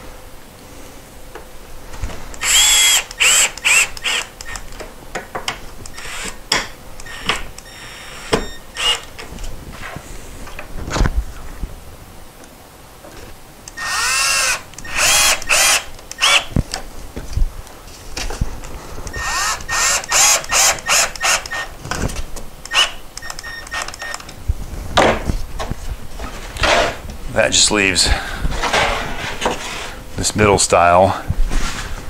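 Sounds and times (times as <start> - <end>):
cordless driver driving screws: 2.4 - 4.8, 5.8 - 6.4, 7.0 - 9.2, 13.7 - 16.5, 19.1 - 21.7, 22.6 - 24.2.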